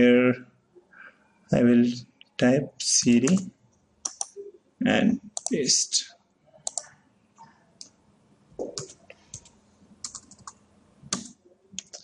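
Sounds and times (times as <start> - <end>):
keyboard keys clicking: 8.6 - 12.0.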